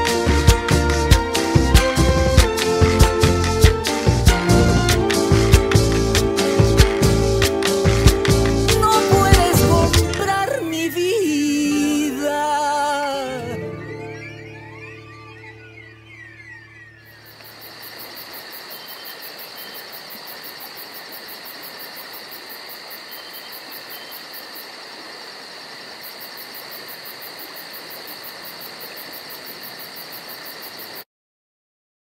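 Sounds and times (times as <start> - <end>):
insects trilling: 8.8 - 31.0
constant hiss: 17.2 - 31.0.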